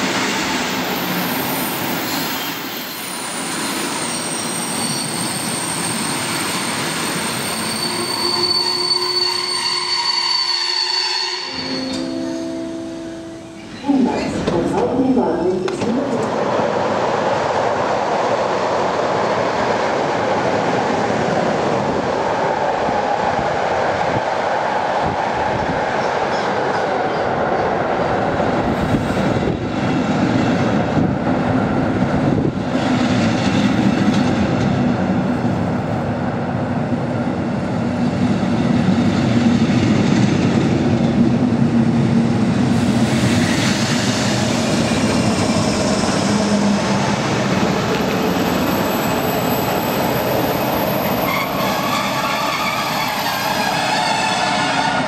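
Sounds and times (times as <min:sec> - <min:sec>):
locomotive hum: 0:30.9 - 0:55.0.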